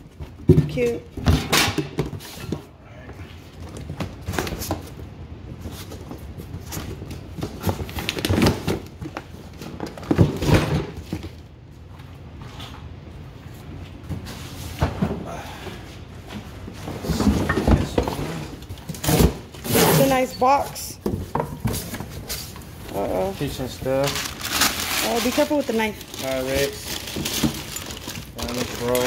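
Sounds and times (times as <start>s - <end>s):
cardboard rustling and scraping: 16.4s - 29.0s.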